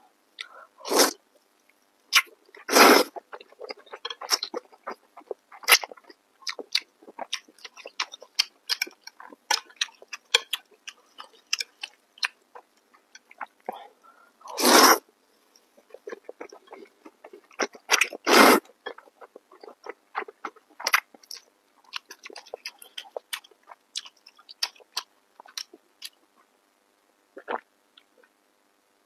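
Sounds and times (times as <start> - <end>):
person slurping noodles: 0.8 - 1.2, 2.6 - 4.5, 14.5 - 15.0, 17.6 - 18.7
wet chewing and lip-smacking: 3.1 - 13.8, 15.8 - 18.2, 18.8 - 26.2.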